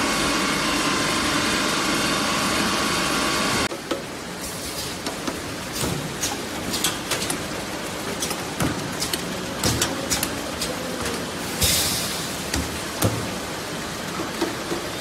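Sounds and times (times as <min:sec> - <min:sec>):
steady machine hiss: 0:11.4 - 0:12.5.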